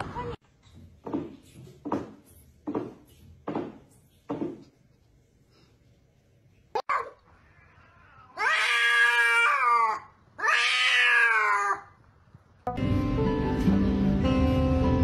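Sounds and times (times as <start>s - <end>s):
cat meowing: 6.9s - 11.9s.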